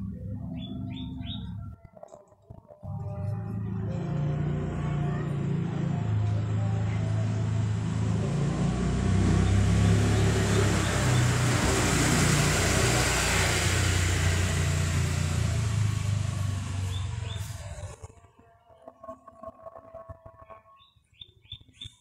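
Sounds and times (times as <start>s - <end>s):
motor vehicle passing by: 2.9s - 18.2s.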